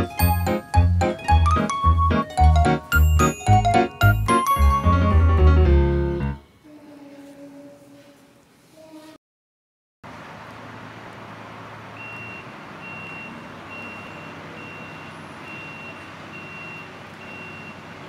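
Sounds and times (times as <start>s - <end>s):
outdoor background noise: 10.0s - 18.0s
reversing alarm beeping: 12.0s - 17.9s.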